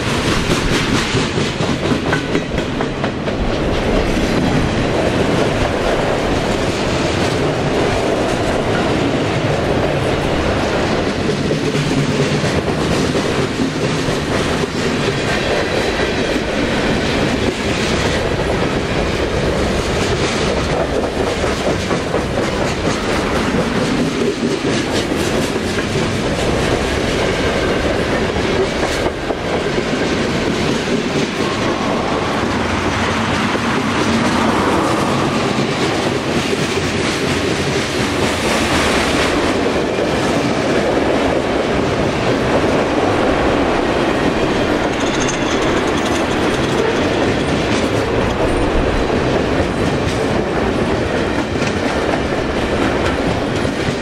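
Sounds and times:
clacks over rail joints: 0:00.0 - 0:42.7, 0:44.1 - 0:54.0
freight train wheels rumbling: 0:00.0 - 0:54.0.

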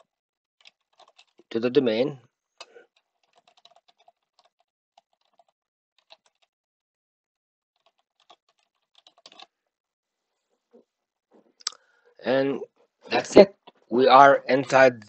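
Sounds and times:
computer keyboard typing: 0:00.0 - 0:01.6, 0:02.6 - 0:06.5, 0:07.8 - 0:09.5.

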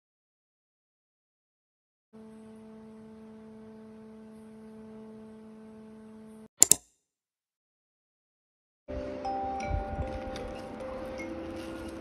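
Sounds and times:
steady even hum: 0:02.2 - 0:06.5
sharp double click: 0:06.6 - 0:06.9.

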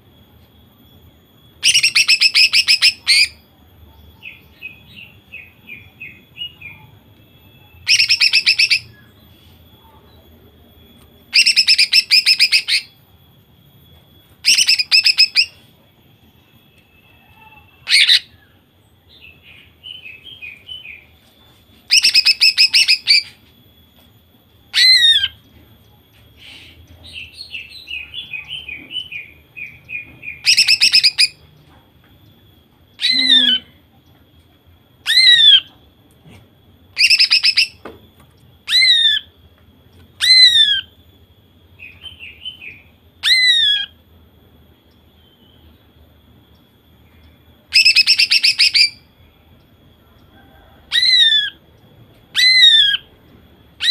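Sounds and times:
bird twittering: 0:01.6 - 0:03.4, 0:07.6 - 0:09.1, 0:11.3 - 0:13.0, 0:14.4 - 0:15.6, 0:21.9 - 0:23.4, 0:26.4 - 0:31.4, 0:32.9 - 0:33.8, 0:37.0 - 0:37.8, 0:38.6 - 0:39.4, 0:40.1 - 0:41.0, 0:47.2 - 0:49.1, 0:52.3 - 0:53.2.

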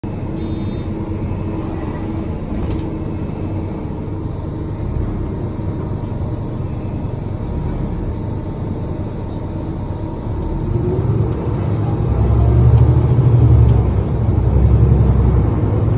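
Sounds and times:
vehicle engine and road rumble: 0:00.0 - 0:15.9.

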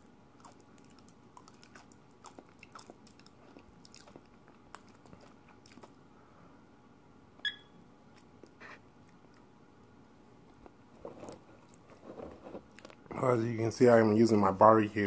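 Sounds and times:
person chewing chip: 0:00.0 - 0:06.1
digital timer beep: 0:07.4 - 0:07.7.

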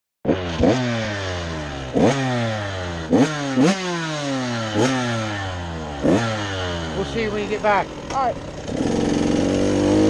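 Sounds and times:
motocross bike engine revving: 0:00.3 - 0:10.0.

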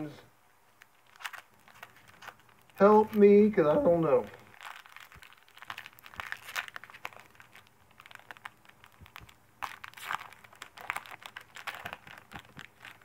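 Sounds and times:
cards and wrapper crinkling: 0:00.7 - 0:13.0.

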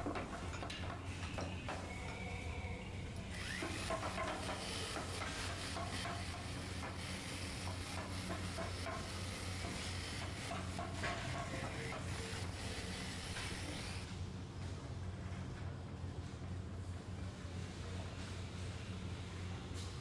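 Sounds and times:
electric drill grinding into wood: 0:03.3 - 0:10.8, 0:11.5 - 0:14.0.

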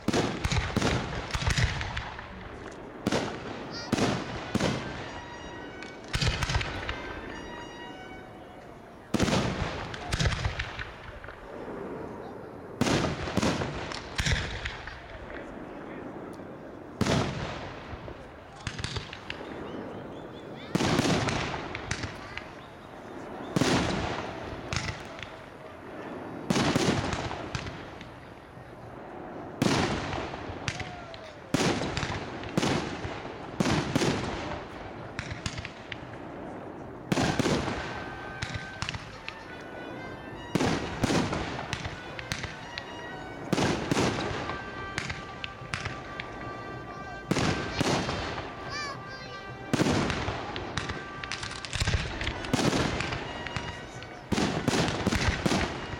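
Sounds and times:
firework shells bursting: 0:00.0 - 0:11.5, 0:37.1 - 0:55.9.

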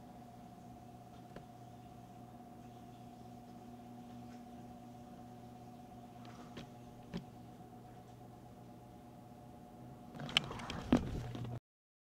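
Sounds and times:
handheld camera rustling: 0:10.2 - 0:11.6.

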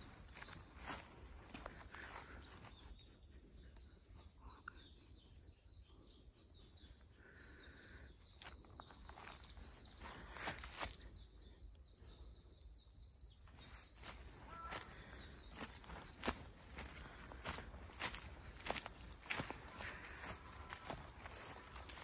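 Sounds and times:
footsteps on leaves: 0:00.0 - 0:02.4, 0:09.1 - 0:11.0, 0:13.6 - 0:22.0
small birds chirping: 0:00.0 - 0:22.0.

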